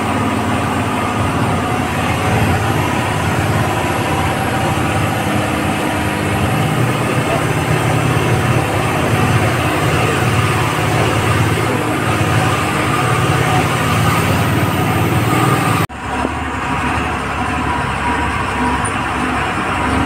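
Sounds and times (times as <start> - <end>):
heavy vehicle engine and road drone: 0.0 - 20.0.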